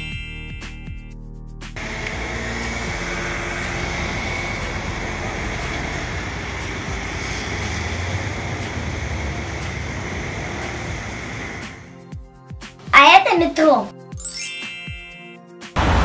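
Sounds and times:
coach driving past: 1.8 - 11.9
cars and motor scooters: 1.8 - 12.0, 15.8 - 16.0.

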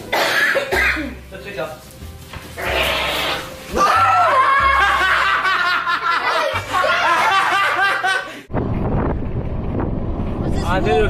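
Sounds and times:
background music: 0.0 - 8.5
people laughing: 4.2 - 8.4.

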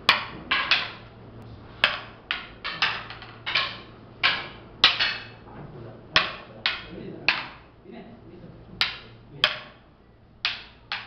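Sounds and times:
wooden sticks clacking: 0.0 - 1.2, 1.8 - 5.5, 6.1 - 7.7, 8.8 - 11.0.

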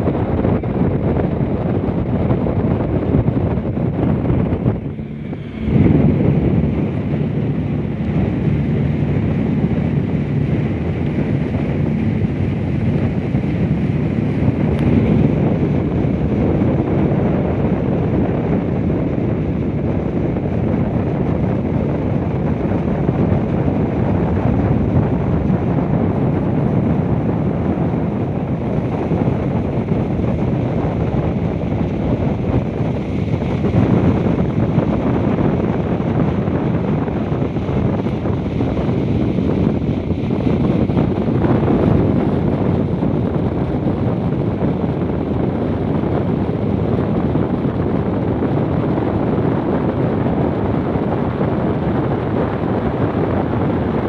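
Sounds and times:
speedboat engines droning: 0.0 - 18.5
rushing water from boat wake: 0.0 - 54.0
wind rumbling on microphone: 0.0 - 54.0.

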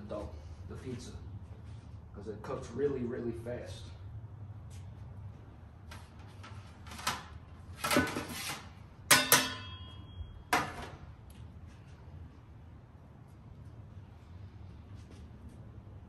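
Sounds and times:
metal pizza peels clattering: 6.1 - 9.9
sharp metallic clanks: 9.1 - 11.0.

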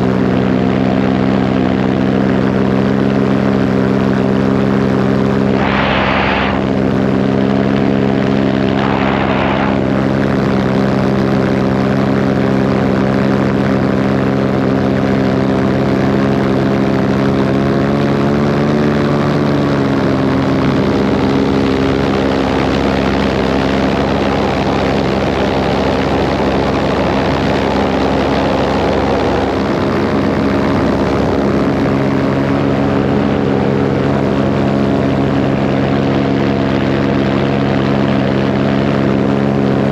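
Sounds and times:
paramotor engine and propeller: 0.0 - 39.9
short rushes of noise: 5.5 - 10.2.

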